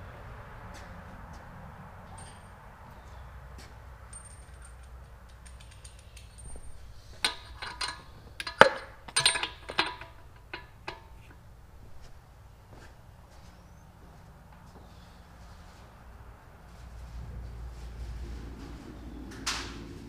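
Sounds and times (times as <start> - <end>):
light metallic clinks and clicks: 2.1 - 2.6, 4.0 - 11.4.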